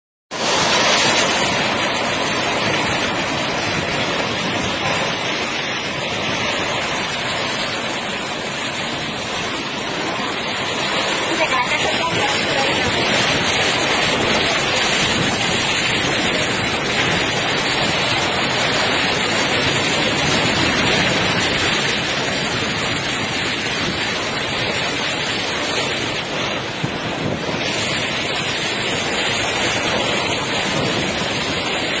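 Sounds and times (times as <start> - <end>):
heavy rain: 0.3 - 32.0
wind: 0.3 - 32.0.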